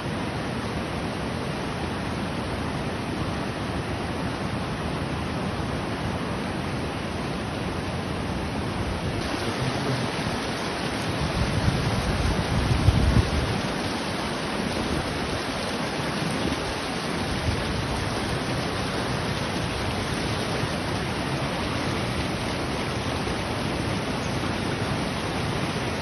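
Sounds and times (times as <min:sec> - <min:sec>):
rushing river water: 0:00.0 - 0:26.0
wind buffeting microphone: 0:08.8 - 0:22.7.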